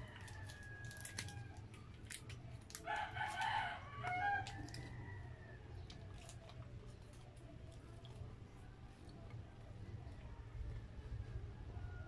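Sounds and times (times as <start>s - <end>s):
rooster crowing: 0.0s - 1.8s, 2.8s - 5.9s
plastic packet crinkling: 0.0s - 4.9s
low hum: 0.0s - 12.0s.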